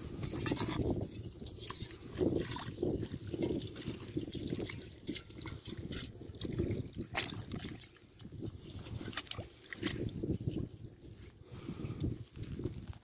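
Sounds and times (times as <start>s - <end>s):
trickling water: 0.0s - 13.0s
hands squelching through wet mud: 0.3s - 13.0s
small splashes: 1.6s - 10.3s.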